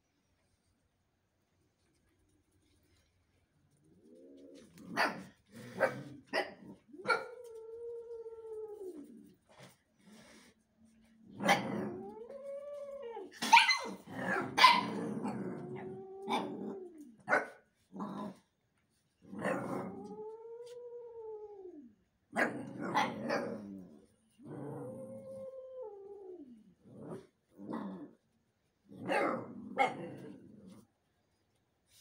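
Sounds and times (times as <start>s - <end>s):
dogs barking: 13.4s - 14.9s.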